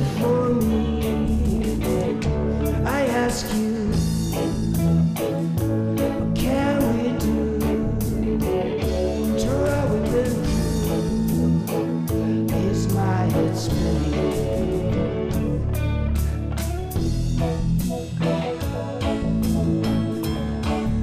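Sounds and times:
bass guitar: 0:00.0 - 0:21.0
electric guitar with bent notes: 0:00.0 - 0:21.0
steady drum beat: 0:00.1 - 0:06.6.

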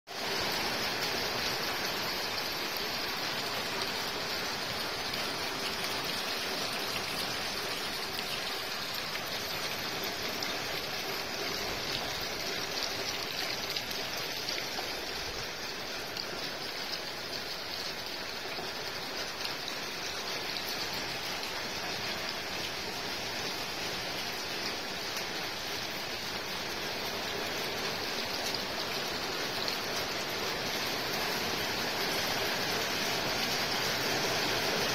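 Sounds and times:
steady rain falling: 0:00.1 - 0:34.9.

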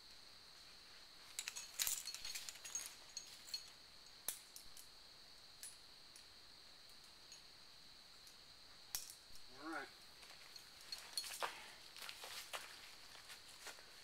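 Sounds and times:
climbing hardware clinking: 0:01.3 - 0:04.9, 0:10.3 - 0:12.1.

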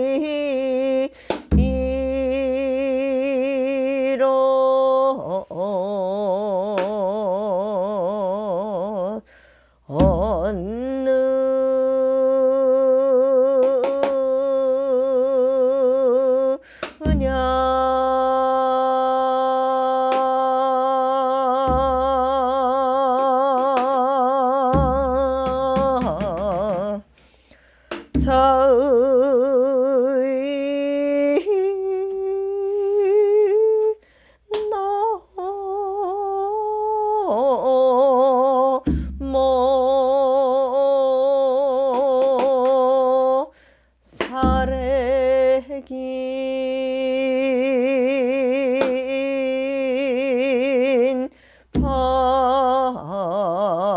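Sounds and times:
woman singing with vibrato: 0:00.0 - 0:09.3, 0:09.9 - 0:27.2, 0:27.9 - 0:53.9
low thumps: 0:10.0 - 0:10.8, 0:21.5 - 0:27.0, 0:27.9 - 0:29.4, 0:38.9 - 0:39.7, 0:44.4 - 0:45.5, 0:51.8 - 0:52.6.

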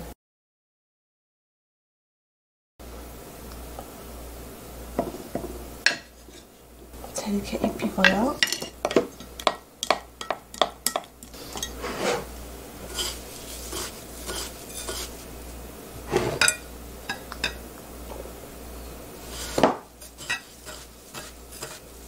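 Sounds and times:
kitchen utensils clinking: 0:07.4 - 0:15.3, 0:16.1 - 0:17.6, 0:19.3 - 0:21.8.

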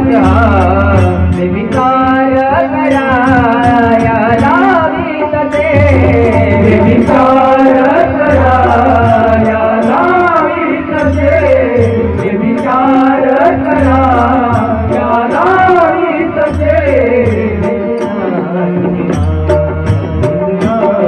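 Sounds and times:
low drum beat: 0:00.0 - 0:10.4, 0:11.1 - 0:21.0
person singing devotional song: 0:00.0 - 0:21.0.

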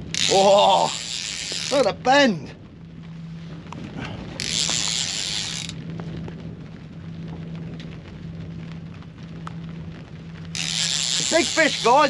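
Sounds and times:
fishing reel drag buzzing: 0:00.0 - 0:02.0, 0:04.4 - 0:05.8, 0:10.5 - 0:12.0
low hum: 0:00.0 - 0:12.0.

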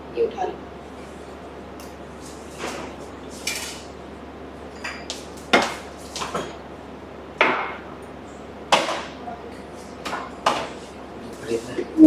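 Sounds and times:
glasses and bowls clinking: 0:04.7 - 0:05.1.

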